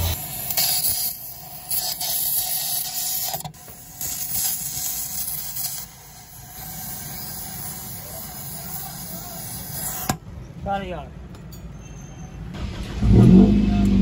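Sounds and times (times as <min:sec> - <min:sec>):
gas torch hissing: 0:00.0 - 0:10.2.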